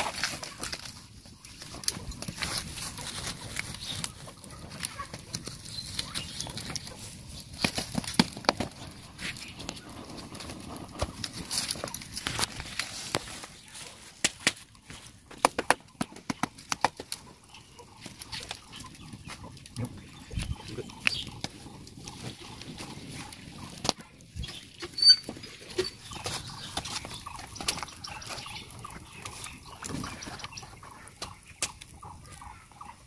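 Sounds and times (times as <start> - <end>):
stick pushing through dry leaves: 0.0 - 15.1
leaves being stuffed into tube: 0.0 - 17.1.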